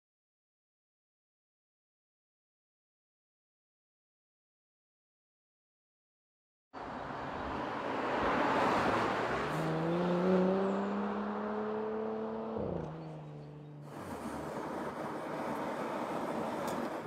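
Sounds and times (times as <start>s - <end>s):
car engine accelerating: 6.9s - 17.0s.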